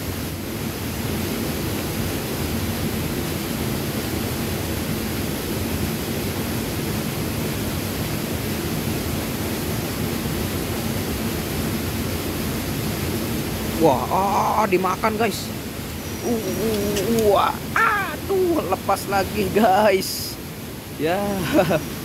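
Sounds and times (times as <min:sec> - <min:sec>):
flowing river water: 0:00.0 - 0:22.0.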